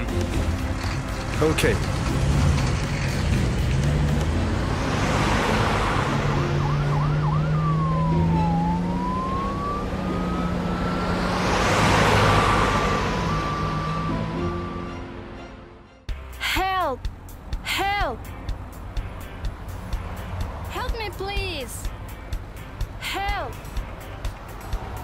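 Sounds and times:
cartoon vehicle passing: 1.0s - 15.4s
cartoon fire engine siren: 6.1s - 15.2s.

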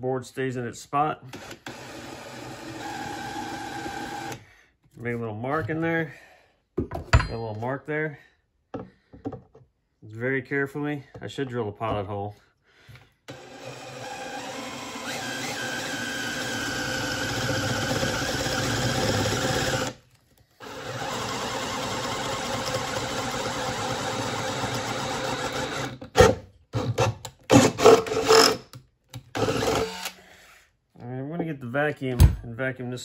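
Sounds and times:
cordless drill boring through metal: 1.3s - 4.4s, 13.3s - 20.0s, 20.6s - 28.6s, 29.2s - 30.2s.

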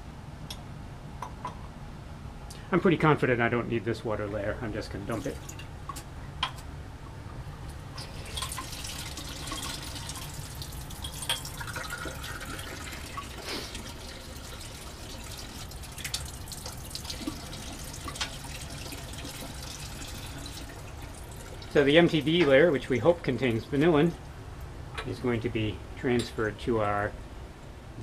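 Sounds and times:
water splashing into a sink: 8.0s - 22.2s.

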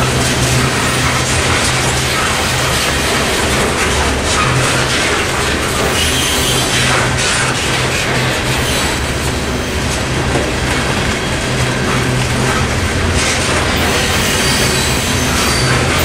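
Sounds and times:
steel wheels on rails: 0.0s - 16.0s
train wheels clickety-clack: 0.0s - 16.0s
wheel squeal: 4.3s - 7.4s, 13.8s - 16.0s.

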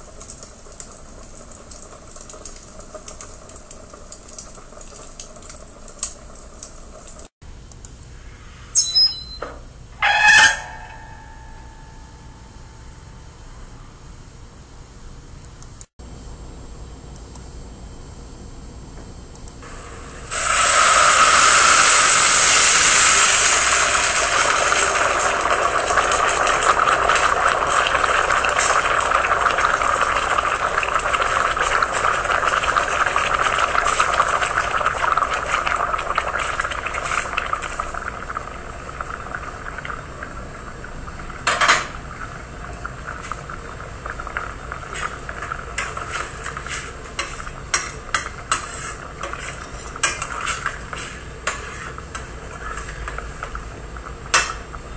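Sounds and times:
rice sizzling in a saucepan: 0.0s - 7.3s, 19.6s - 54.9s.

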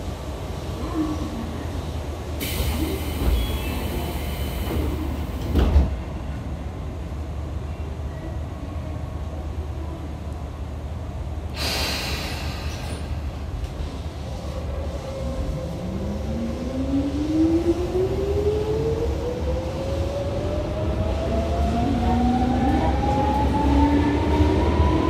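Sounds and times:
train wheels rumbling on rail: 0.0s - 7.4s, 11.0s - 25.0s
short burst of hissing: 11.6s - 13.1s.

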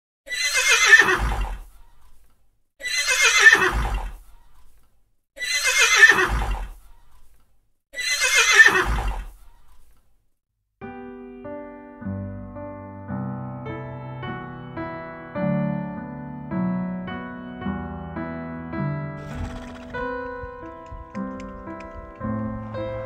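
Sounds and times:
horse whinnying: 0.3s - 1.7s, 2.8s - 4.2s, 5.4s - 6.8s, 8.0s - 9.4s, 19.2s - 22.0s
gentle piano music: 10.8s - 23.0s.

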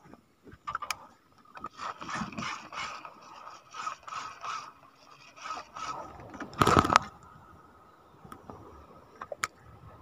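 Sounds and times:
fishing reel gears whirring: 1.6s - 6.3s.

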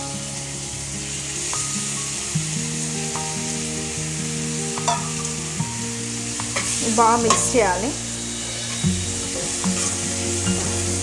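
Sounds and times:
soft instrumental music: 0.0s - 11.0s
vegetables sizzling in a frying pan: 0.0s - 11.0s
spatula scraping a pan: 8.3s - 11.0s.

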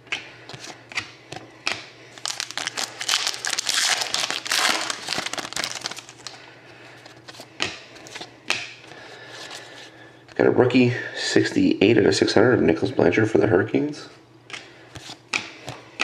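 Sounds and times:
foil wrapper crinkling: 2.1s - 6.4s
cards tapping: 14.5s - 16.0s.

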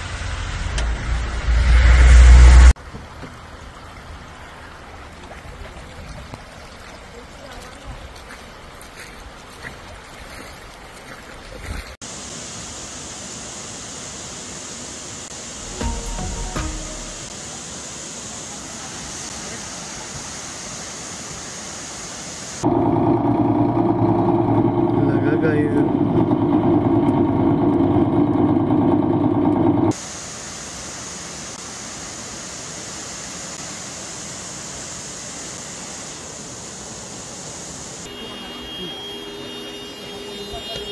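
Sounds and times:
vehicle and floodwater rumble: 0.0s - 14.6s, 22.6s - 30.4s, 32.6s - 40.9s
hissing water noise: 2.7s - 22.7s, 29.9s - 40.9s
water and rain rushing: 2.7s - 23.7s, 29.9s - 38.5s.

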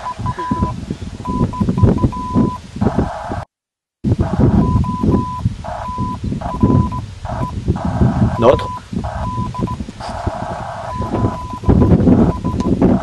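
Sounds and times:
morse-like electronic beeps: 0.0s - 3.4s, 4.2s - 13.0s
bursts of hiss: 4.1s - 13.0s.

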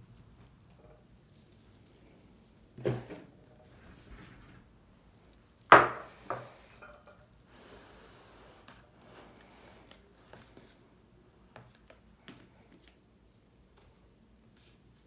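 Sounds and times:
soft paper rustles: 7.5s - 10.9s.

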